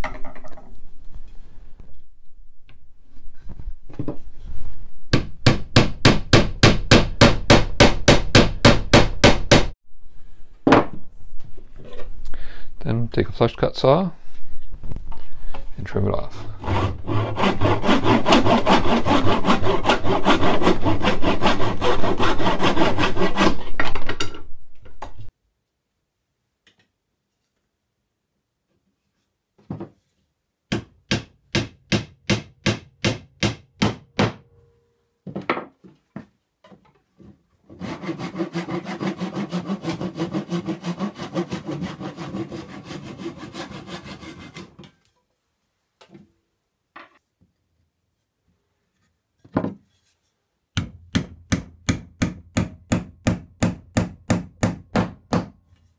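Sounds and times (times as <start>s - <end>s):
saw cutting wooden dowel: 16.4s - 23.8s, 37.7s - 44.9s
wooden mallet striking dowel: 50.8s - 55.6s.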